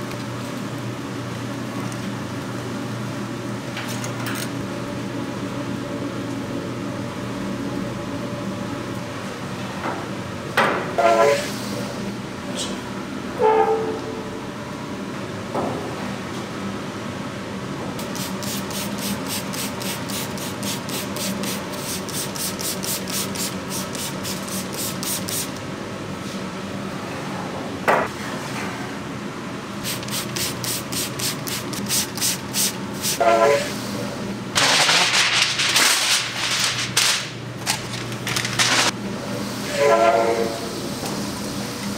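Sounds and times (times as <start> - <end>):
steady low hum: 4.5 - 11.0.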